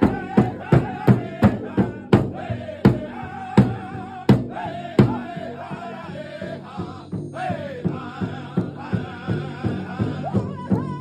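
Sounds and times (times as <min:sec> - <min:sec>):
large drum struck with sticks: 0:00.0 - 0:05.5
group singing: 0:00.0 - 0:11.0.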